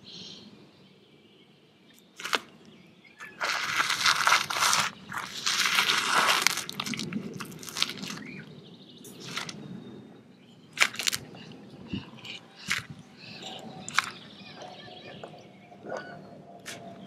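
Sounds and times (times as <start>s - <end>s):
lizard crunching lobster shell: 2.0s - 2.6s, 3.3s - 8.4s, 9.1s - 9.6s, 10.8s - 11.3s, 12.0s - 14.2s.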